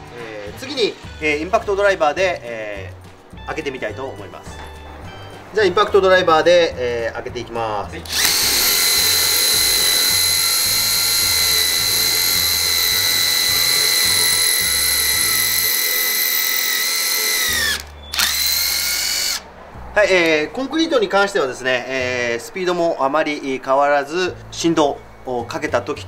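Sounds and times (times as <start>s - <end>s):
impact driver drilling concrete: 8.1s - 19.4s.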